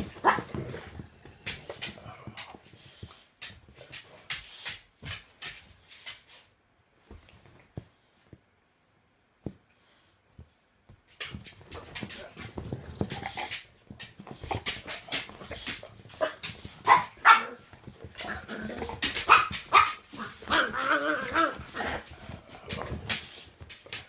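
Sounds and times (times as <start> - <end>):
dogs barking: 0.1 - 0.5, 16.2 - 17.6, 18.2 - 21.7.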